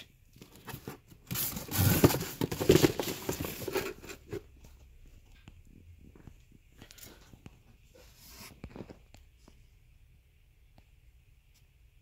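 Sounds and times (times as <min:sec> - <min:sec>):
cardboard box being opened: 0:00.4 - 0:04.5.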